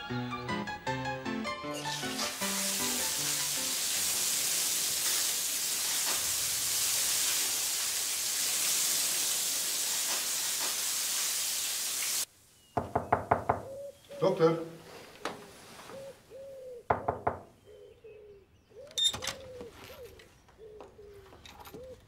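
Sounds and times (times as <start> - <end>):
hose spraying water onto tiles: 1.7 - 12.3.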